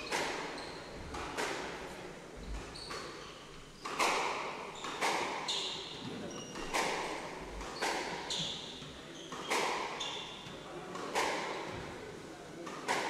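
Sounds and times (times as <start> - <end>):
shoes squeaking on wooden floor: 0.0 - 1.0, 2.4 - 4.0.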